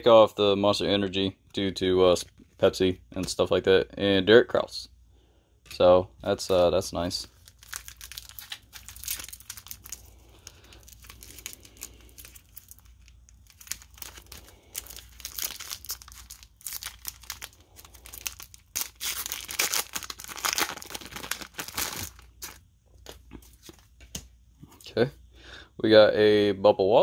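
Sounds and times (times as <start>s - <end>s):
wrapper crinkling and tearing: 7.2s - 23.7s.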